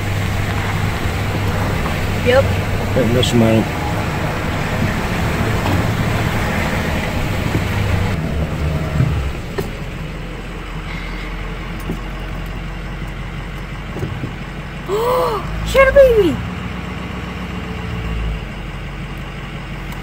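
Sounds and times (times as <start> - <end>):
road noise: 0.0 - 20.0
truck engine: 0.0 - 20.0.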